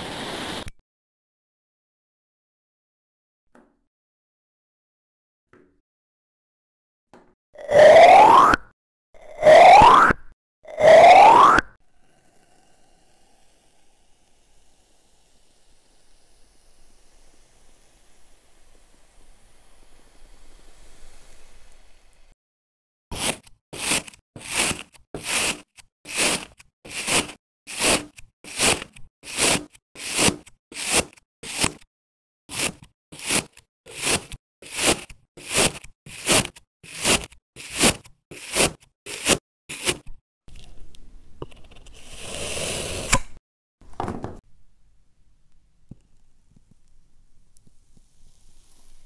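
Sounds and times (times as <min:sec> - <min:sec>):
play sand hissing and crumbling: 0:00.0 - 0:00.7, 0:11.8 - 0:22.4, 0:23.1 - 0:31.9, 0:47.4 - 0:49.0
knife slicing through sand: 0:23.1 - 0:31.8, 0:32.5 - 0:40.1.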